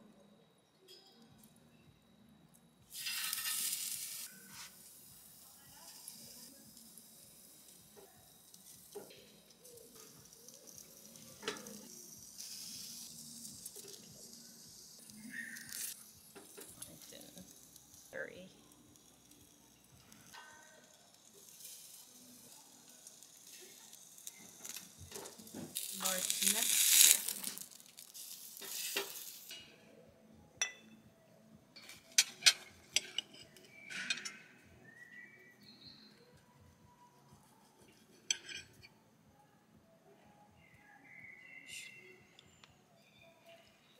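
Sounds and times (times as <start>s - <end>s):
food sizzling on grill: 2.9s - 30.0s
metal tongs clicking on grate: 8.6s - 14.3s, 31.8s - 34.4s
cutlery clinking on plates: 8.9s - 10.2s, 11.2s - 11.9s, 30.6s - 31.0s, 31.8s - 34.6s, 37.8s - 39.0s.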